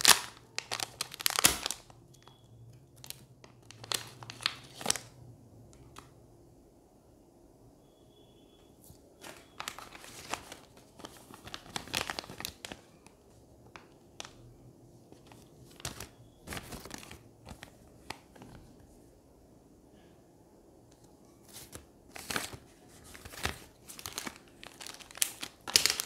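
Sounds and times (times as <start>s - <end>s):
plastic zip bags crinkling: 0.0s - 2.0s, 3.0s - 5.1s, 9.2s - 14.4s, 15.2s - 18.7s, 21.5s - 26.0s.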